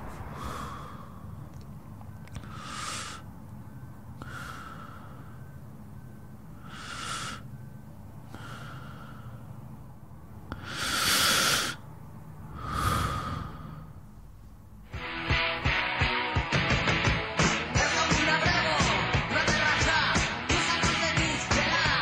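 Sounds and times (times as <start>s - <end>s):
person breathing heavily: 0.0s - 1.7s, 2.3s - 3.4s, 4.0s - 5.8s, 6.4s - 9.7s, 10.5s - 14.6s
low steady hum: 0.0s - 15.8s.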